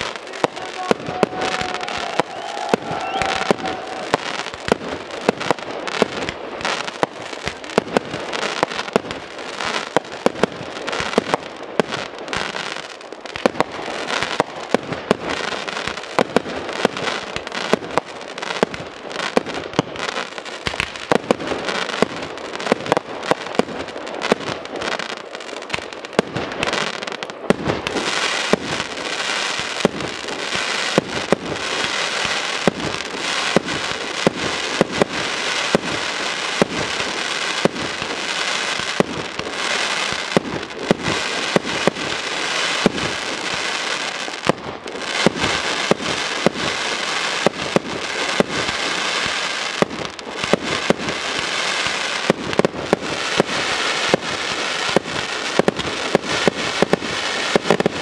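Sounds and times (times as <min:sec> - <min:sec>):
firework shells bursting: 0:00.0 - 0:08.2
fireworks crackling hiss: 0:00.0 - 0:58.0.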